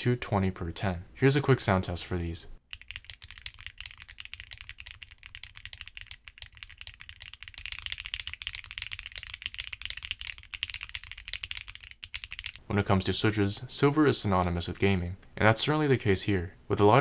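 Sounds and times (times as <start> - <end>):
mechanical keyboard typing: 2.7 - 12.6.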